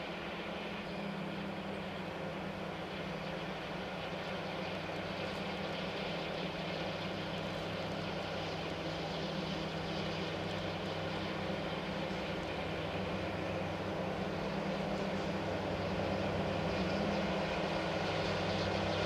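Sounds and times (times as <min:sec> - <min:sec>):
locomotive engine hum: 0:00.0 - 0:19.0.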